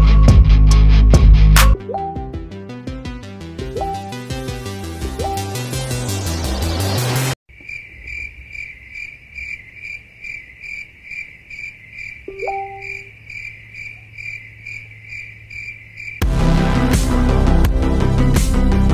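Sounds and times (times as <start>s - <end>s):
background music: 0.0s - 7.4s, 16.2s - 18.9s
crickets chirping: 7.5s - 16.2s.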